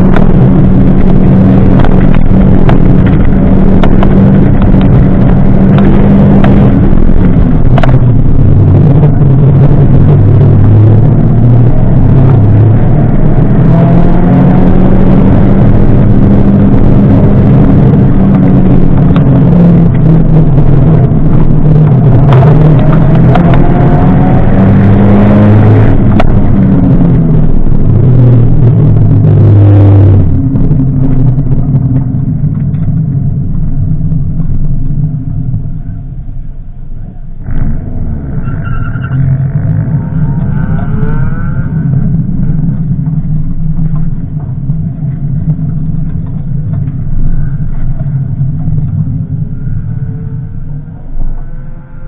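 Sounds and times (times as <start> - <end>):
car engine revving hard: 0.0 - 31.9.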